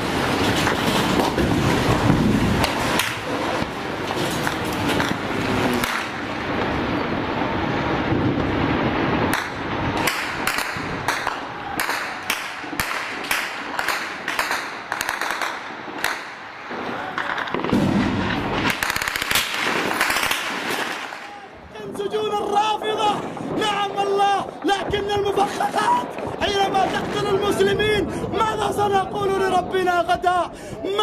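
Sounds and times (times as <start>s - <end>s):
gunshots: 0.0s - 6.6s, 9.3s - 21.5s
noisy rumble: 0.0s - 30.8s.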